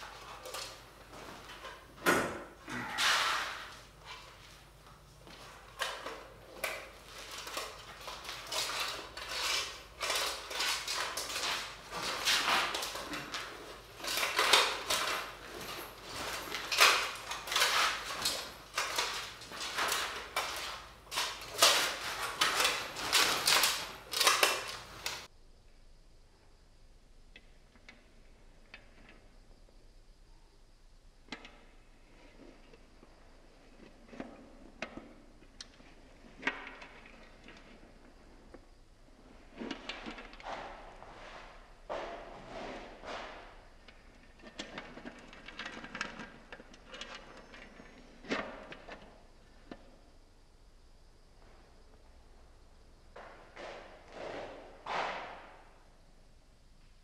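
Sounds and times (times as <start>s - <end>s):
metallic scraping and clinking: 7.1s - 25.3s.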